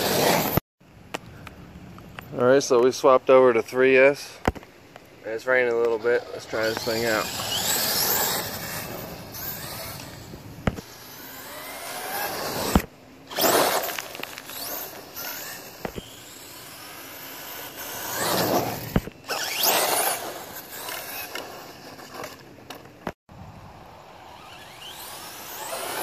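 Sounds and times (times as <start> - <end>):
electric motor whining: 6.4 - 22.3, 24.2 - 26.0.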